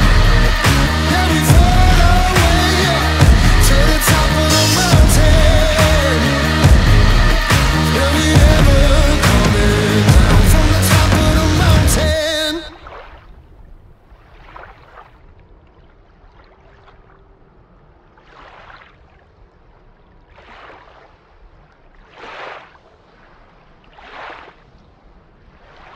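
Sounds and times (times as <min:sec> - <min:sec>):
small waves lapping on rocky shore: 0:18.0 - 0:25.9.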